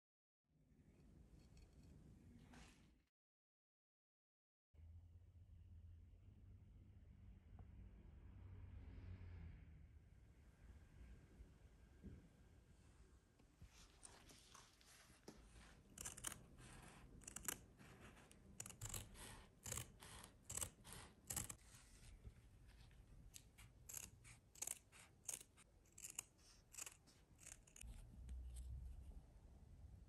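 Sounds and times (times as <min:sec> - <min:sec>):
scissors snipping felt: 0:15.6 - 0:21.6, 0:23.3 - 0:28.6.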